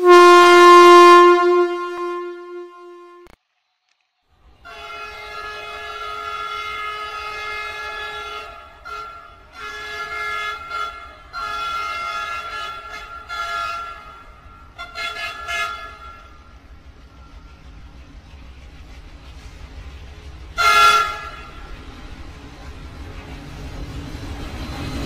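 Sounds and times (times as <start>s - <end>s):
electronic toy train horn: 0.0s - 3.4s, 4.7s - 16.4s, 20.6s - 21.5s.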